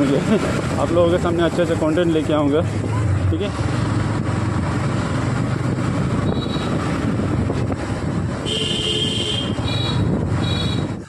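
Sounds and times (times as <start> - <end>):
motorcycle engine running: 0.0 - 11.0
wind noise: 2.6 - 11.0.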